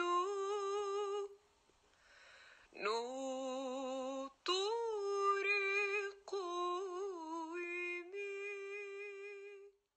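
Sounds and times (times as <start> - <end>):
person singing with vibrato: 0.0 - 1.6, 2.3 - 9.9.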